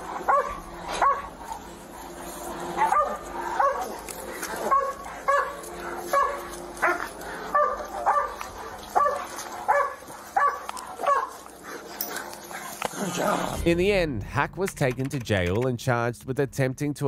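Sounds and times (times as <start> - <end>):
dog barking: 0.0 - 1.6, 2.7 - 11.4.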